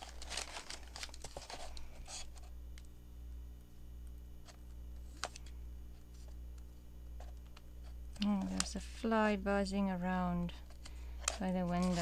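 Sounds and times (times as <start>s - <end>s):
book pages rustling: 0.0s - 2.5s, 7.2s - 8.8s, 10.7s - 12.0s
steady low hum: 0.0s - 12.0s.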